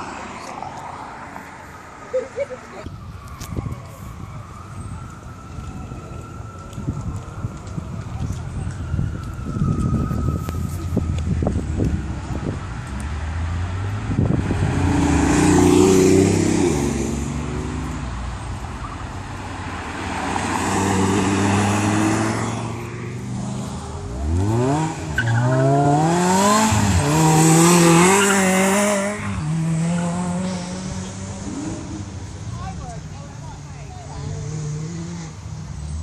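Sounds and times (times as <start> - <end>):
car engine accelerating through upshifts: 19.9 - 32.2.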